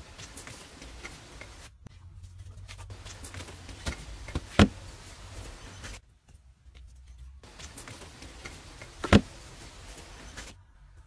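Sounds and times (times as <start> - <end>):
stone slab knocking on dirt: 8.9 - 9.4.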